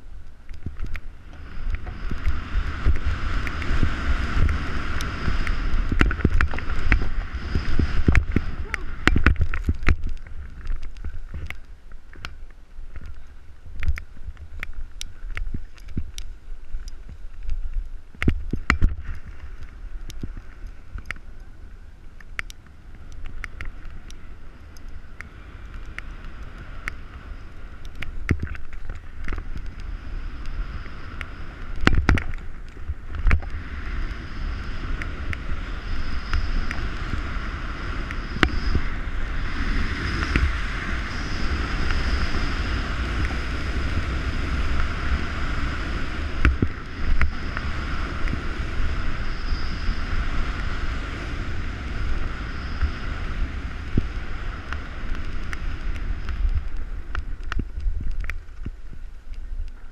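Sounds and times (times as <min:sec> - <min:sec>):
wind buffeting microphone: 0:00.0 - 0:11.8, 0:22.7 - 0:59.9
snowboard scraping over snow: 0:01.1 - 0:11.4, 0:32.4 - 0:57.1.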